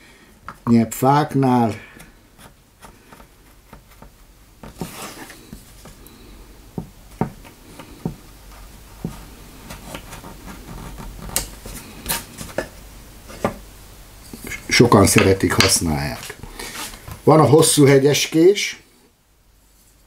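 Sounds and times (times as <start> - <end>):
knife scraping wood: 2.0 - 5.6.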